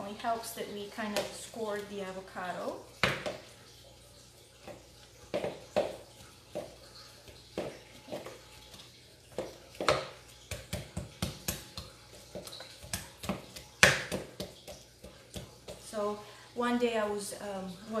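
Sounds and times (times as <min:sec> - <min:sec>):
pestle mashing avocado in bowl: 0:04.6 - 0:16.0.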